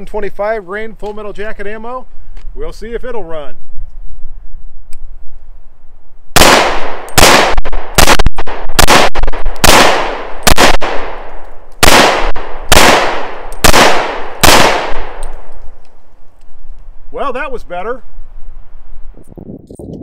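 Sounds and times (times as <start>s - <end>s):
pistol shots: 6.4s - 15.6s.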